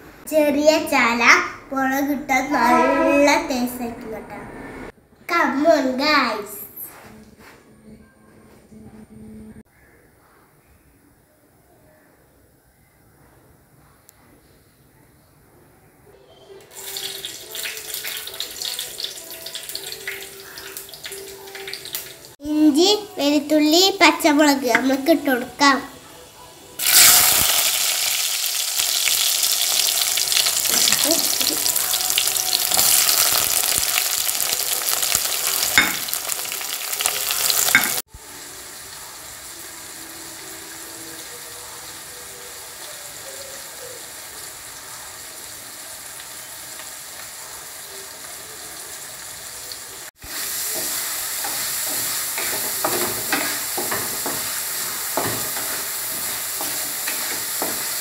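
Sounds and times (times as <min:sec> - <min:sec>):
vegetables sizzling in hot oil: 0:16.7 - 0:23.3, 0:26.7 - 0:58.0.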